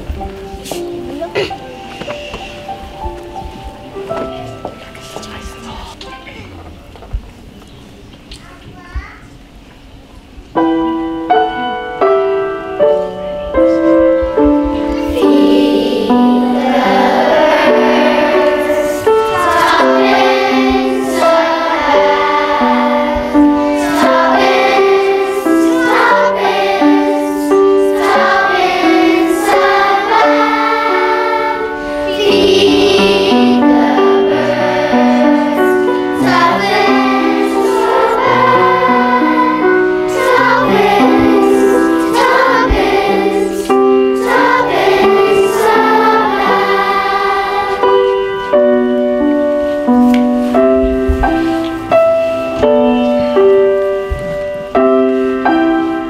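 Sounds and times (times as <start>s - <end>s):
piano accompaniment: 0.0s - 7.6s, 9.5s - 56.0s
children's choir singing: 13.5s - 54.0s.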